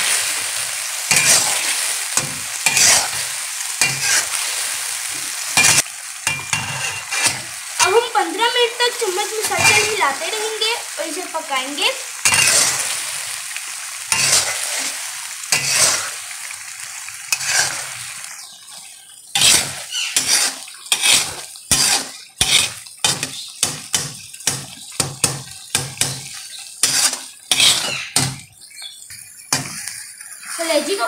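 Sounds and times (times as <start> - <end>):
sauce sizzling: 0.0 - 31.0
spatula scraping a pan: 1.1 - 4.6, 5.6 - 8.0, 9.2 - 10.0, 12.2 - 13.0, 14.1 - 16.4, 17.3 - 28.5, 29.1 - 31.0.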